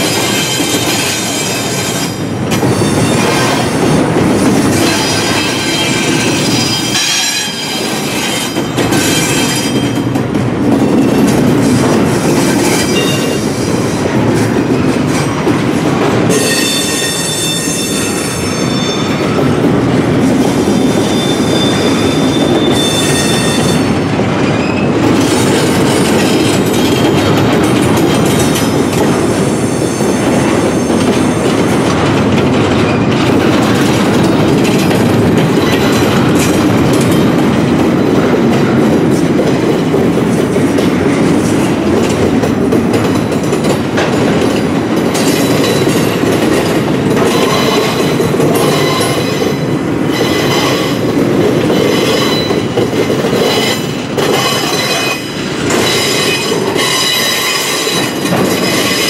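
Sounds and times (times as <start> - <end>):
freight train rumbling: 0.0 - 59.0
high ringing wheel squeal: 4.9 - 10.0, 16.3 - 19.4, 20.7 - 24.0.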